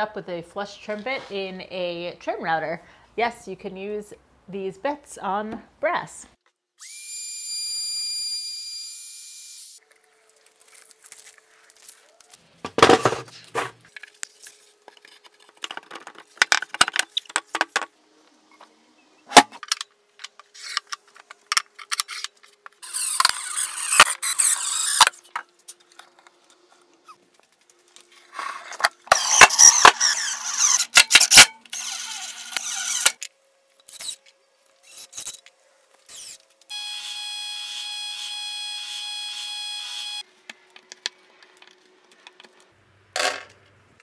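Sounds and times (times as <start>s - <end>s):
trim router whine: 36.7s - 40.2s.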